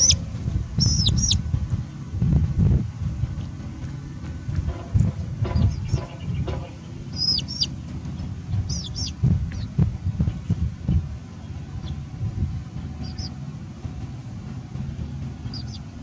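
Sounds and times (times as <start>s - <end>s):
high gliding chirping calls: 0.0s - 1.4s, 5.5s - 10.6s, 13.0s - 13.4s, 15.3s - 16.0s
low rumble with knocks: 0.0s - 16.0s.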